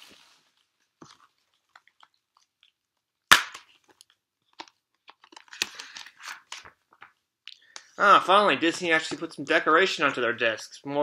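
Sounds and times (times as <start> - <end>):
plastic clicks and rustling: 3.6 - 7.2.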